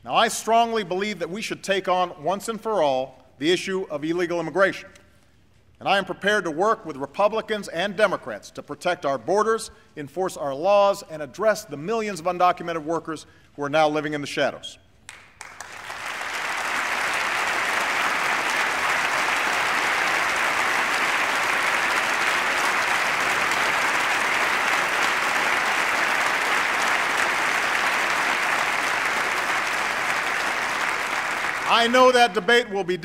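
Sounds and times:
large audience applauding: 15.1 - 32.4.

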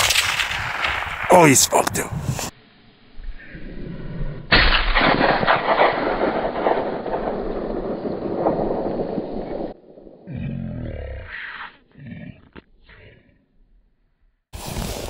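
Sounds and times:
rifle shot with rolling echo: 0.0 - 1.6, 4.5 - 10.2.

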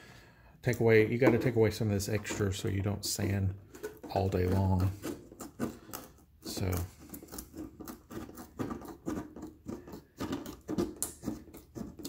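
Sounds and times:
tin snips cutting plastic: 3.7 - 12.0.

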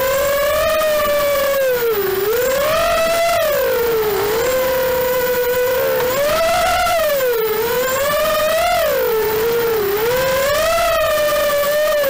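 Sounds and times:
drone motors buzzing whine: 0.0 - 12.0.

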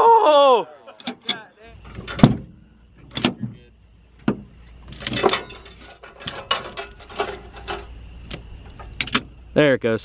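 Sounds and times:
metal rattle: 1.0 - 9.5.

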